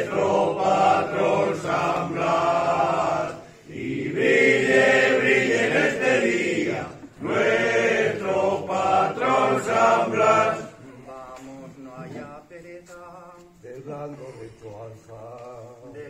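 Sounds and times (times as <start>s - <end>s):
group singing a hymn: 0.0s - 16.0s.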